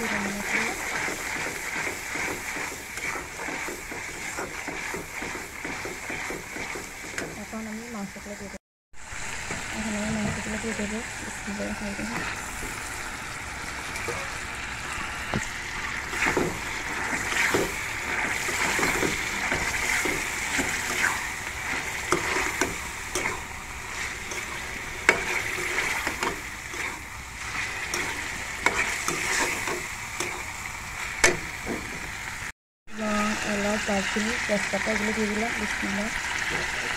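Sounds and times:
metal spatula scraping pan: 0:00.0 - 0:07.4, 0:16.1 - 0:30.5
meat sizzling in oil: 0:00.0 - 0:08.2, 0:09.0 - 0:36.9.

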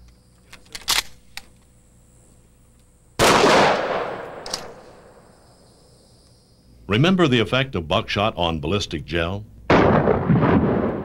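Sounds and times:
shotgun shot: 0:03.2 - 0:05.2, 0:09.7 - 0:11.0.

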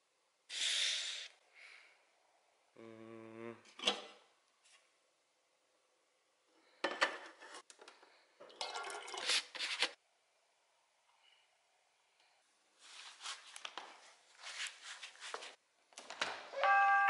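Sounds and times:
man humming: 0:02.8 - 0:03.7.

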